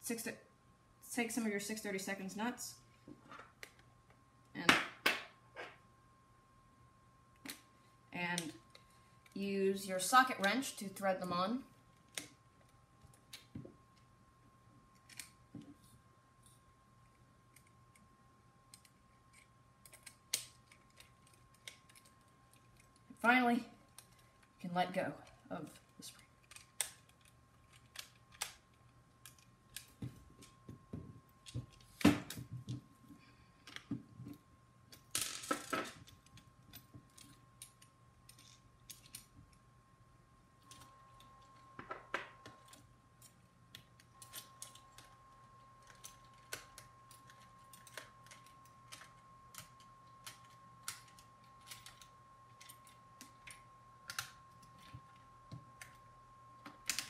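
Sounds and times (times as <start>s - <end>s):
plastic parts and screws rattling: 34.9s - 39.3s.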